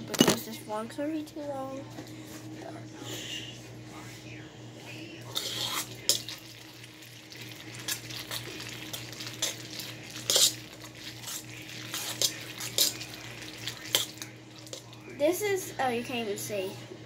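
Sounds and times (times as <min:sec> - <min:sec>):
metal utensil scraping a steel pot: 0:10.2 - 0:10.6, 0:11.2 - 0:13.0.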